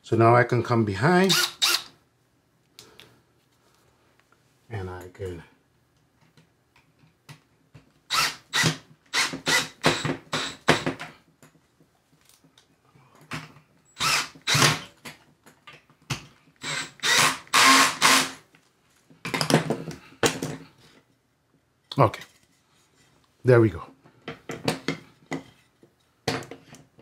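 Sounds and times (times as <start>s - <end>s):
power drill bursts: 1.2s - 1.9s, 8.1s - 10.8s, 14.0s - 14.8s, 16.6s - 18.4s.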